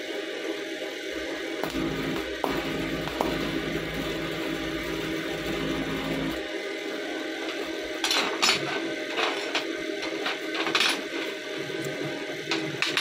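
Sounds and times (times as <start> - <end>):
welding arc hum: 1.2 - 8.1.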